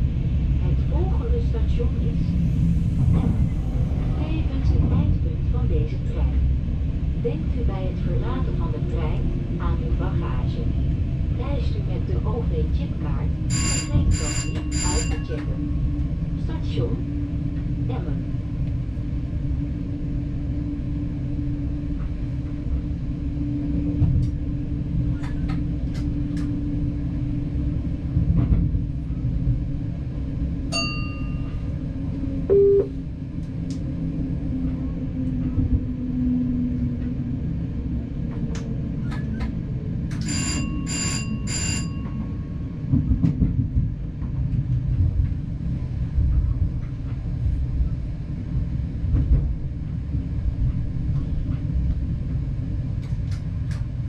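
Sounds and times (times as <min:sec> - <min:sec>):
diesel train rumbling: 0:00.0 - 0:54.0
short beep: 0:32.5 - 0:32.9.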